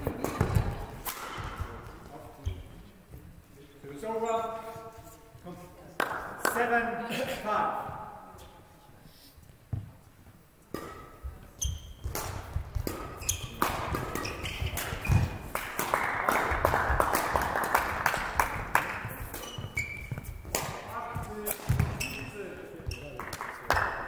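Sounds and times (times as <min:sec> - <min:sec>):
rackets smacking shuttlecock: 0:00.0 - 0:01.9, 0:10.7 - 0:22.2
shoes squeaking on court floor: 0:00.0 - 0:05.2, 0:10.7 - 0:15.5, 0:18.6 - 0:23.5.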